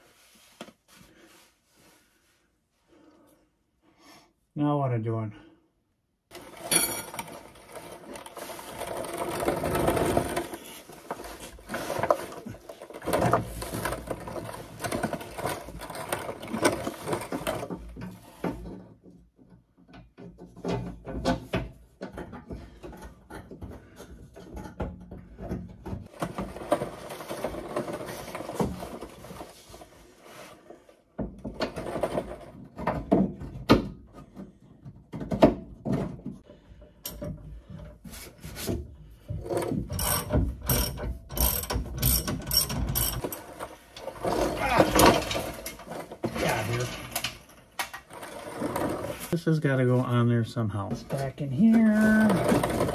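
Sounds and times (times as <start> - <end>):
metal parts knocking and clattering: 6.3 - 29.5, 39.4 - 49.1.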